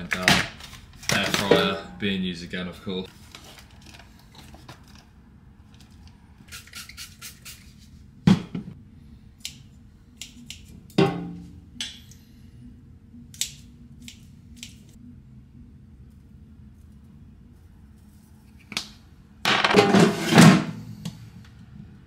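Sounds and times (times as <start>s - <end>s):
faint steady hum: 7.8s - 19.9s.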